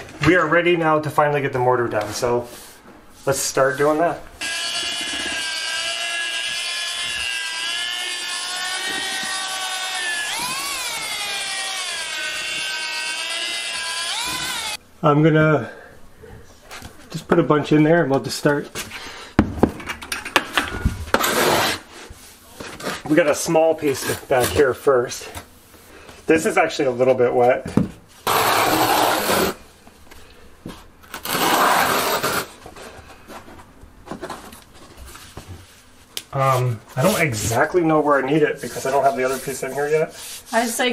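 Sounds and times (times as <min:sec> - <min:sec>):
drill mixer whining: 0:04.4 - 0:14.8.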